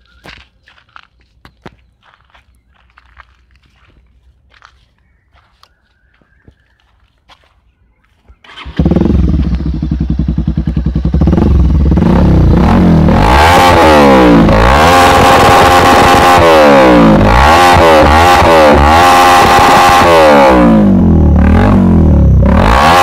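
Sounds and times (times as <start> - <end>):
motorcycle engine starting and revving: 8.3 - 23.0.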